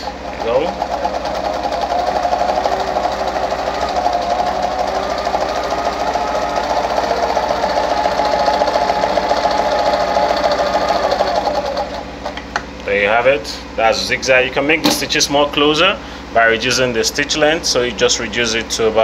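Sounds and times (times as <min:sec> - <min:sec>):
sewing machine clattering: 0:00.0 - 0:12.4.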